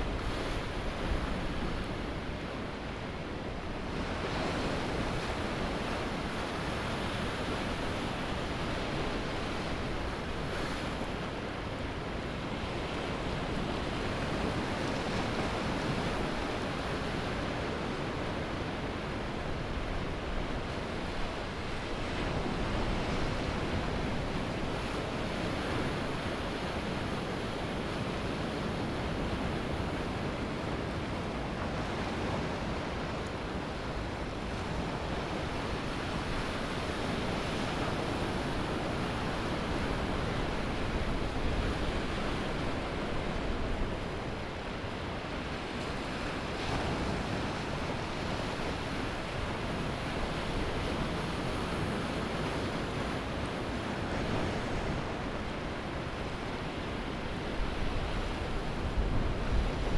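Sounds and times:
ocean waves breaking on beach: 0.0 - 59.9.

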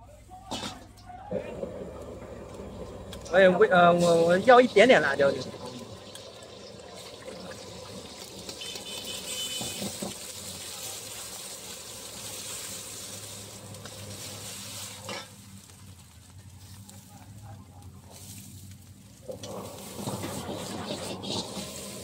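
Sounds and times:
eggs sizzling in oil: 1.3 - 17.0, 18.0 - 22.0
metal ladle scraping wok: 13.8 - 15.4, 19.4 - 22.0.

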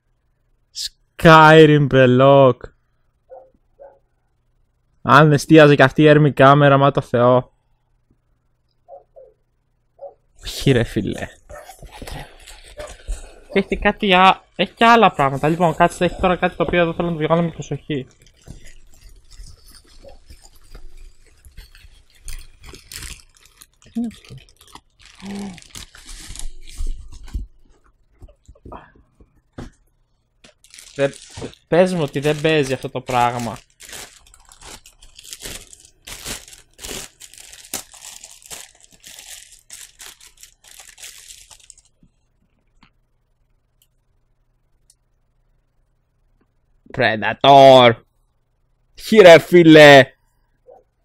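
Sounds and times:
bubble wrap crinkling: 11.0 - 28.6, 30.4 - 42.3.

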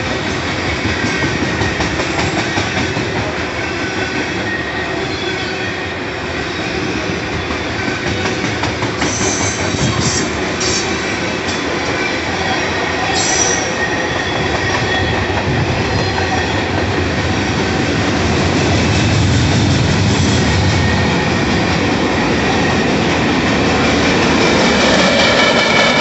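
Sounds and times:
train cars clattering over rails: 0.0 - 4.5, 7.4 - 26.0
wheels squealing against rails: 3.6 - 16.8.

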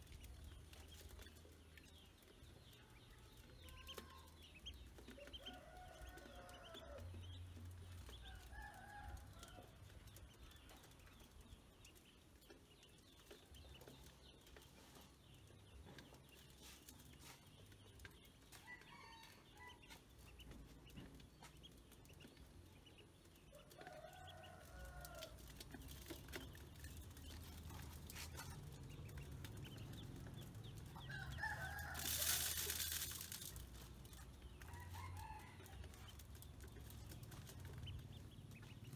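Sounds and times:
chickens clucking: 9.6 - 38.9
grains poured into metal basin: 31.0 - 34.6
rooster crowing: 31.1 - 33.0.

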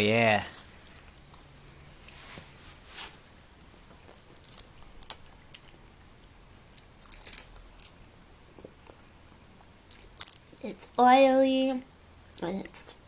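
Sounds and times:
cat chewing crisp seaweed: 4.0 - 6.1, 6.7 - 8.0.

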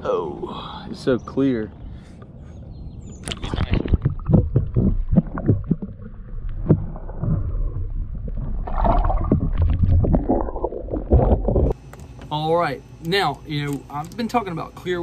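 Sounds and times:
water splashing against kayak: 3.3 - 11.8.

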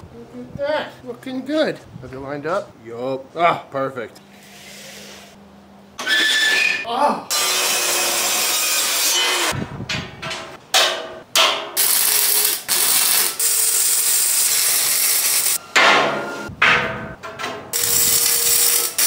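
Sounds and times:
chop saw cutting steel: 7.3 - 9.6, 17.8 - 19.0
arc welding crackle: 11.8 - 15.6, 17.8 - 19.0.

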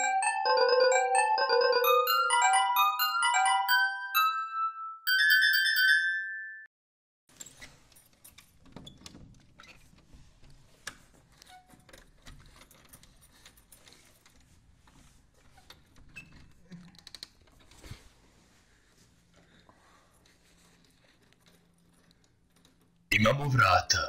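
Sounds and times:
keys jangling in door lock: 7.4 - 9.2, 11.7 - 14.4.

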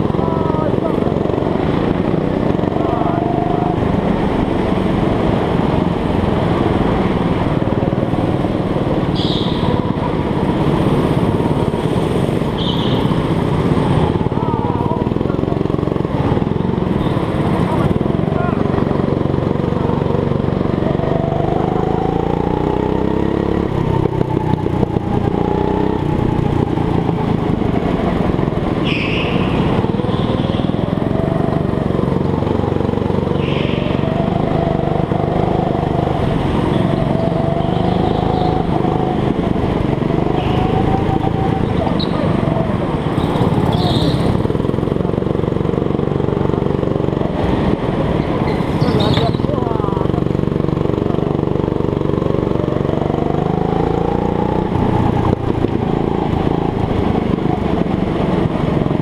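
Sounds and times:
go-kart engine revving: 0.0 - 59.0
tyres squealing: 28.8 - 31.1, 40.2 - 44.5.

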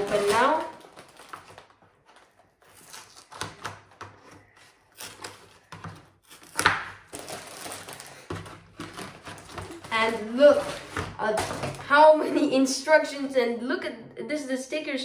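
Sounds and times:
plastic bag crinkling: 0.0 - 3.6, 7.0 - 11.9
scissors snipping plastic: 2.6 - 9.9.

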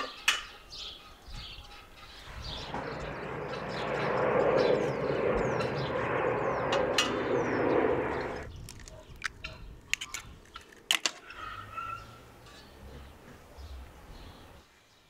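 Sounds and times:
birds chirping: 0.0 - 15.0
jet airliner flying overhead: 1.7 - 10.5
sharp clicks and knocks: 8.6 - 11.3.

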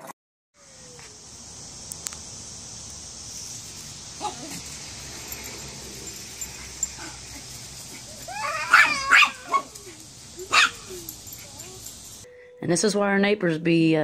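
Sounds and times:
animals scuffling: 2.7 - 12.3
small dog yipping and barking: 4.2 - 4.8, 6.4 - 12.2.

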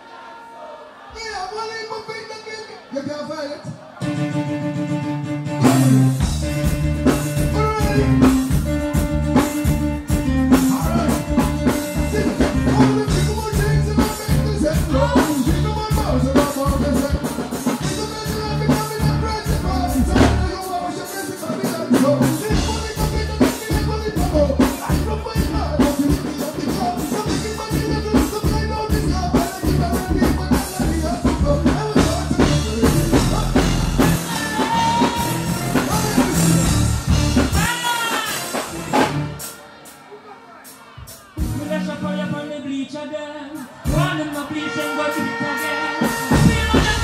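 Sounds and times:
bass: 5.5 - 20.6, 21.9 - 37.8, 38.5 - 39.4, 41.4 - 42.3, 46.3 - 47.0
steady drum beat: 5.6 - 39.6, 43.8 - 47.0
man singing into microphone: 7.4 - 8.5, 10.5 - 36.7, 41.4 - 47.0.

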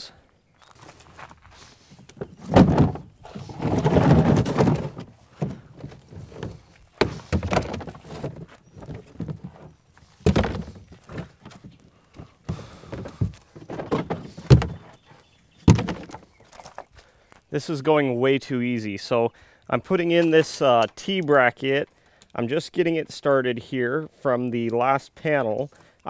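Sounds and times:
plastic scraping on gravel: 0.6 - 16.9
hollow plastic trays knocking: 15.7 - 16.2.

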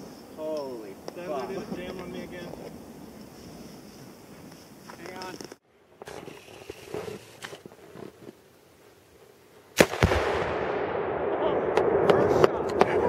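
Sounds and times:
explosion blast: 9.8 - 13.0.

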